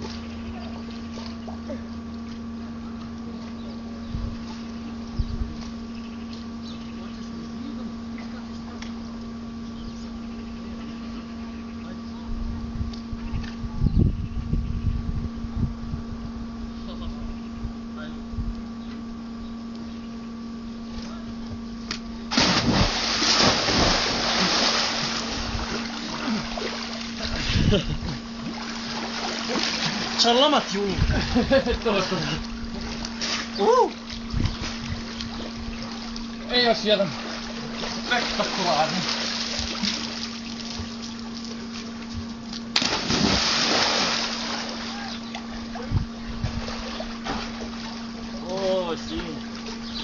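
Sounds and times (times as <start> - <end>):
steady low hum: 0.0 - 50.0
water sloshing and spattering: 22.3 - 27.2, 42.8 - 45.5
person splashing into pool: 22.3 - 27.5, 28.4 - 30.2, 42.7 - 45.6
churning water: 22.3 - 50.0.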